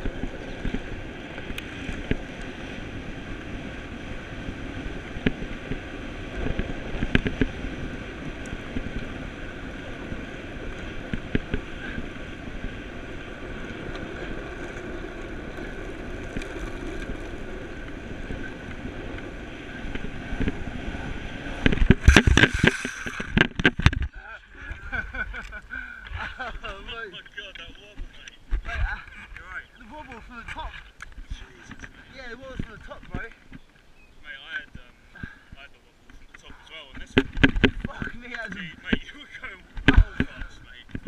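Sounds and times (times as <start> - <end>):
skateboard wheels rolling on asphalt: 0.0 - 24.1, 37.0 - 41.0
wind on microphone: 0.0 - 25.2
board tumbling clattering: 21.7 - 24.2.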